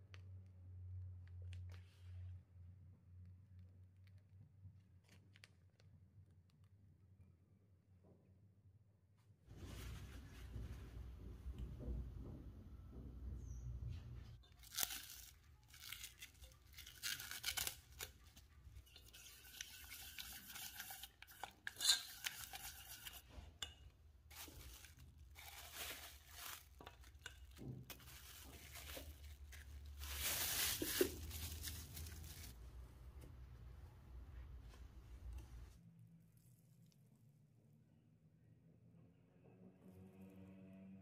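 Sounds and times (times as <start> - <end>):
scraping and rustling of food: 14.4 - 32.7.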